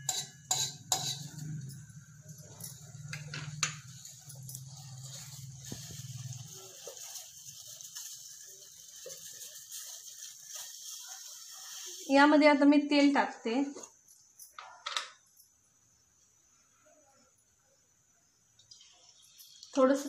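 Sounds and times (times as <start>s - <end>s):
gas burner rumbling: 0.0s - 10.7s.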